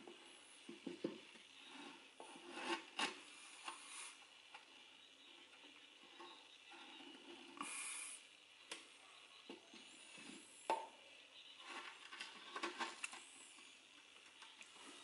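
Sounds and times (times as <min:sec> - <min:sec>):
hissing scrape: 0:01.7 - 0:04.2, 0:06.8 - 0:08.3.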